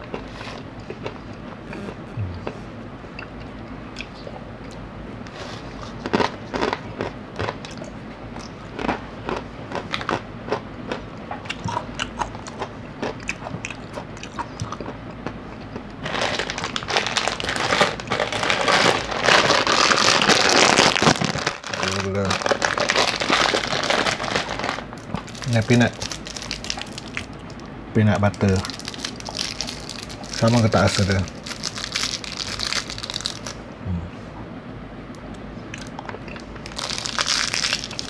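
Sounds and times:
crunchy snack being chewed: 0:00.0 - 0:02.6, 0:05.4 - 0:27.6, 0:28.2 - 0:33.6, 0:35.7 - 0:38.0
plastic snack packets crinkling: 0:16.0 - 0:33.6, 0:35.8 - 0:38.0.

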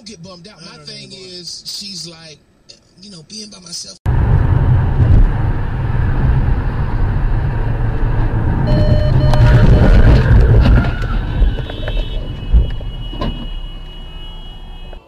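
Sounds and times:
tyres and engine rumble: 0:04.0 - 0:15.0
short steady tones: 0:08.7 - 0:10.3.

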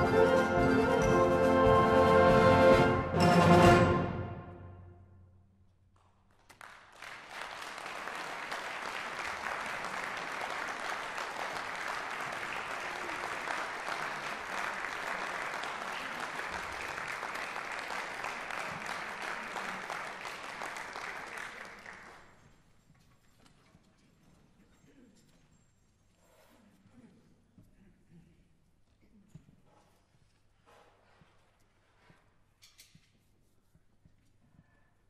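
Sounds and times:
audience applause: 0:06.4 - 0:22.4.

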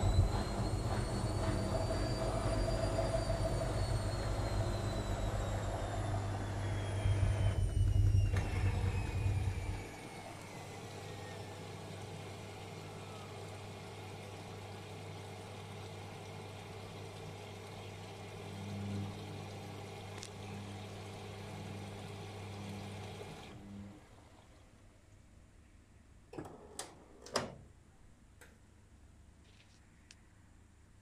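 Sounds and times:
washing machine drum rumble: 0:00.0 - 0:09.9
washing machine motor whine: 0:00.0 - 0:24.8.

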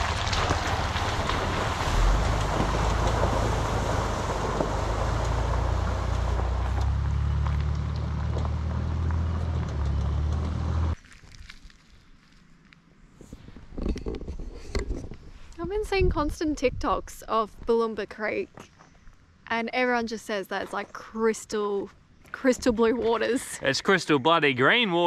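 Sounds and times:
vehicle engine running: 0:00.0 - 0:11.0
tyres on loose stones: 0:00.0 - 0:12.8.

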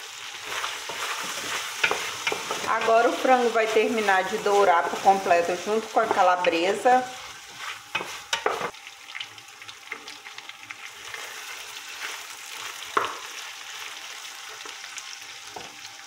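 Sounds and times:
meat sizzling in oil: 0:00.0 - 0:16.0
wooden spoon scraping pot: 0:00.4 - 0:05.3, 0:06.0 - 0:08.7.

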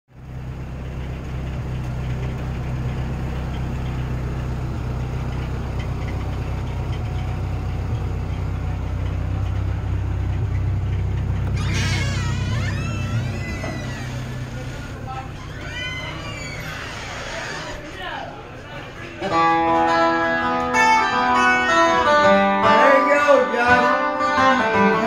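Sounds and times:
low mechanical hum: 0:00.2 - 0:18.7.

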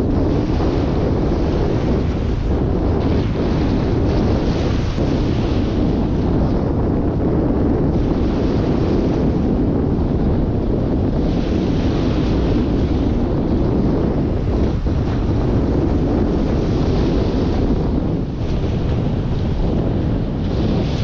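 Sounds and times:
small waves washing up sand: 0:00.0 - 0:06.7
wind buffeting microphone: 0:00.0 - 0:21.0.

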